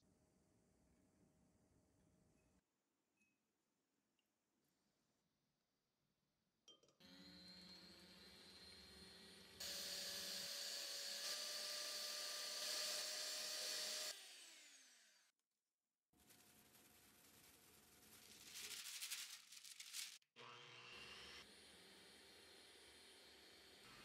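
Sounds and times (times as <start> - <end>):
electric hand mixer whining: 7.0 - 15.3.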